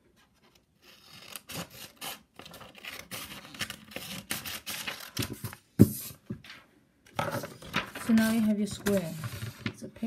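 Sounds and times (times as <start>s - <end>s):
scissors snipping paper: 0.8s - 5.4s
paper rustle: 7.3s - 9.8s.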